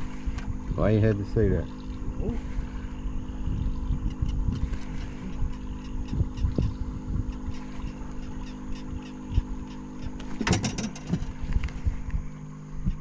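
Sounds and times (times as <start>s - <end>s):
boat motor humming: 0.0s - 13.0s
low rumble of wind or water: 0.0s - 13.0s.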